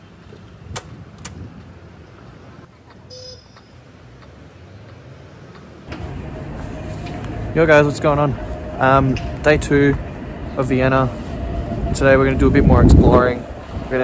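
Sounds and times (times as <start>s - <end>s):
road traffic rumble: 0.0s - 14.0s
brief tone: 3.1s - 3.9s.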